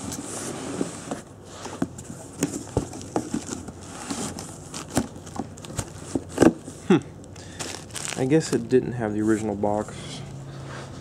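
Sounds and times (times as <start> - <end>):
bubble wrap crinkling: 7.4 - 8.6.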